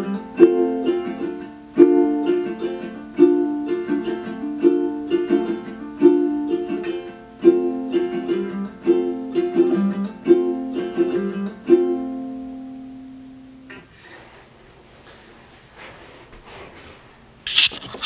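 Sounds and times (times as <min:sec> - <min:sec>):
ukulele strummed in chords: 0:00.0 - 0:13.9
faint rustling: 0:13.7 - 0:18.0.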